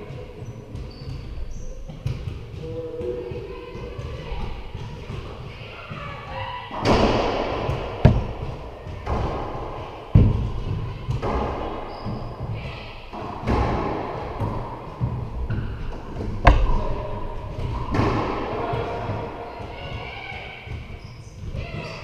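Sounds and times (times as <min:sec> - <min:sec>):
racquet hitting ball: 0:06.7 - 0:12.4, 0:13.1 - 0:20.0
ball hitting court walls: 0:06.7 - 0:21.6.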